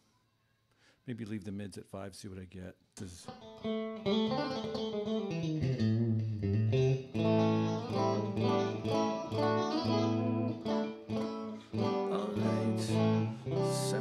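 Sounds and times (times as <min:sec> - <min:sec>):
electric guitar chords and notes: 0:03.3 - 0:14.0.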